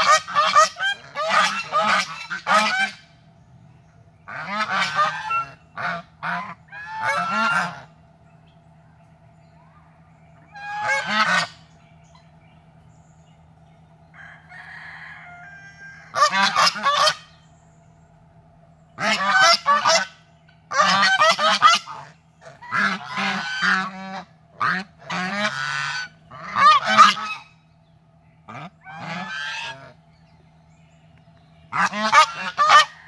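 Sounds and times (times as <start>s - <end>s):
geese honking: 0.0s - 18.0s, 18.8s - 33.0s.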